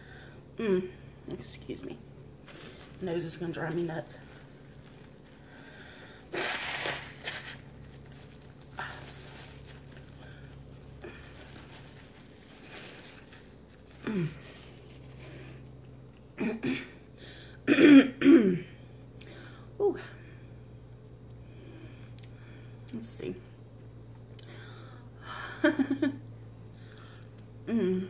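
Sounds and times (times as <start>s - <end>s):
nose blowing into napkin: 6.3s - 7.8s.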